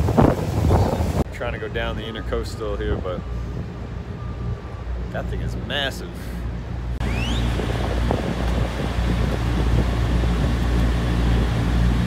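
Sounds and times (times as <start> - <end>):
rushing water: 0.0 - 1.3
wind noise on microphone: 0.0 - 1.3, 7.0 - 12.0
boat engine rumble: 0.0 - 12.0
short rising whistle: 7.0 - 7.7.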